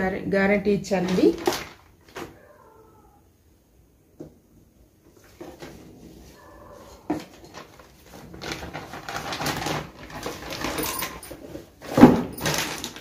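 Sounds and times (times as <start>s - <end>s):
plastic bag rustling: 0.8s - 2.4s, 5.1s - 13.0s.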